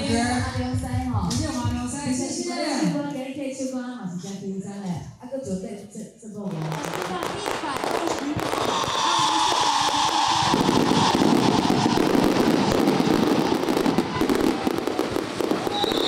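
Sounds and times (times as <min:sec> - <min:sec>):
fireworks crackling and popping: 0:06.5 - 0:16.0
descending whistle-like tone: 0:08.6 - 0:12.7, 0:15.6 - 0:16.0.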